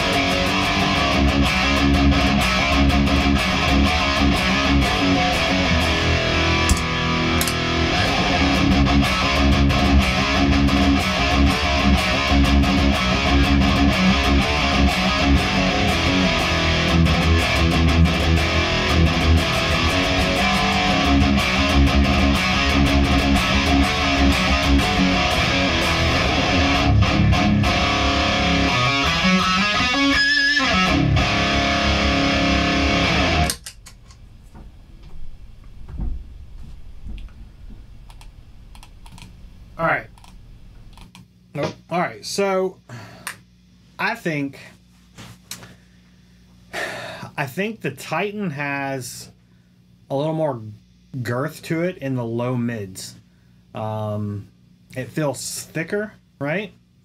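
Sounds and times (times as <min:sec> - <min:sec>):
distorted electric guitar riffing: 0:00.0 - 0:33.7.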